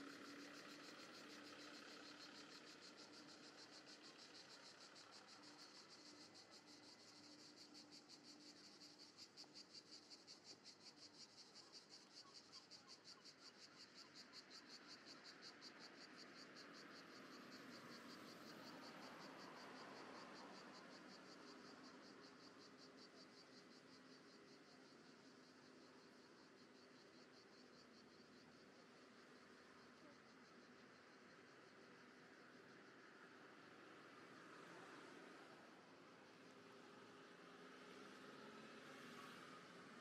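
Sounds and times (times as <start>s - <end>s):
light traffic noise: 31.5s - 40.0s.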